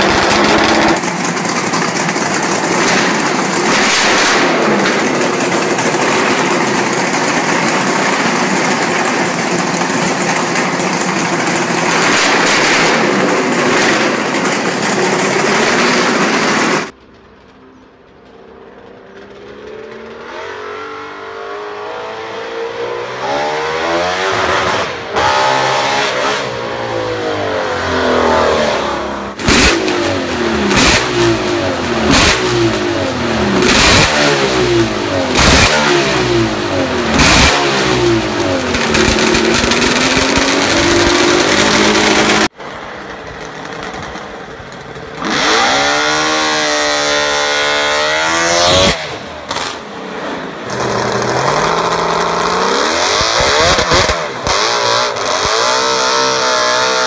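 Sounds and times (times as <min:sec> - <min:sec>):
car engine revving hard: 0:00.0 - 0:01.6, 0:20.0 - 0:42.5, 0:45.2 - 0:57.0
exhaust pops: 0:29.3 - 0:46.1.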